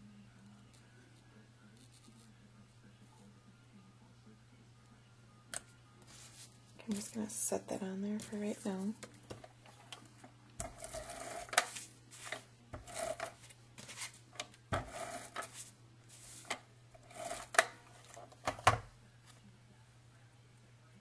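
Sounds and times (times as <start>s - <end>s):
tape runner scraping: 10.6s - 18.8s.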